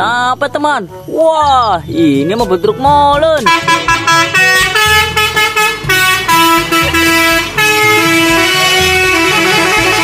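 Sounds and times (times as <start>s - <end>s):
low pulsing beat: 0.1s - 10.0s
horn-like melody: 3.4s - 10.0s.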